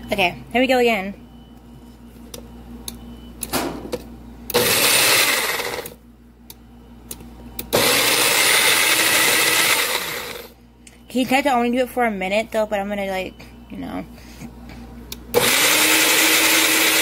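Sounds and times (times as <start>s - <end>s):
blender motor: 4.5s - 6.0s, 7.7s - 10.6s, 15.3s - 17.0s.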